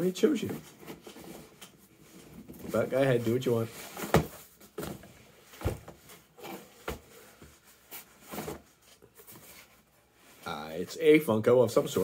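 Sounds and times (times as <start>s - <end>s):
cardboard knocks and scrapes: 0.5s - 9.7s.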